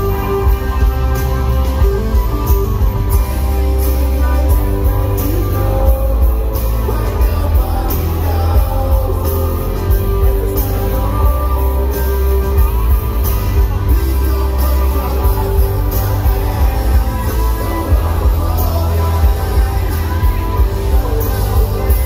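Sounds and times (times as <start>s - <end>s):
live rock band playing: 0.0s - 22.0s
person singing: 3.3s - 22.0s.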